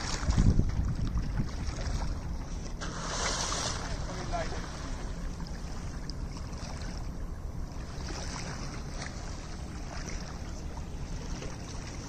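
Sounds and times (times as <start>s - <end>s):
wind on microphone: 0.0s - 5.0s
boat engine hum: 0.0s - 12.0s
water rushing along hull: 0.0s - 12.0s.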